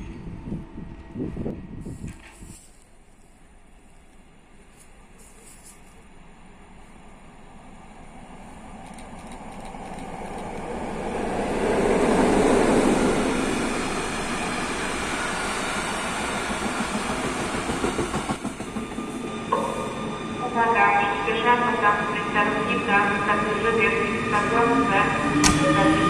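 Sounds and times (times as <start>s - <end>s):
freight train passing: 2.9s - 26.0s
train wheels clattering: 16.2s - 19.7s.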